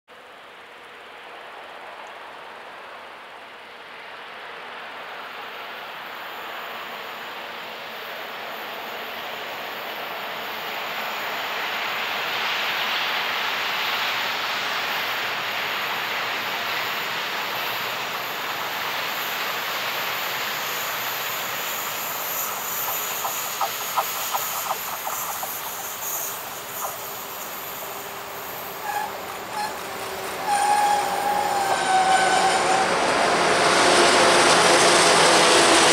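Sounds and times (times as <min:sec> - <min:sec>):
diesel freight train approaching: 0:01.1 - 0:35.9
train wheel squeal: 0:12.7 - 0:35.9
wheels clicking over rail joints: 0:21.8 - 0:32.8.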